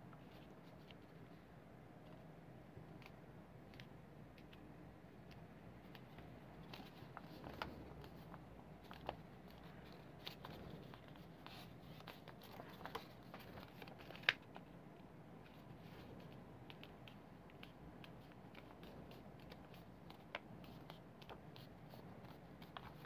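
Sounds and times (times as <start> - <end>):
paper rustling and crinkling: 6.6 - 14.8.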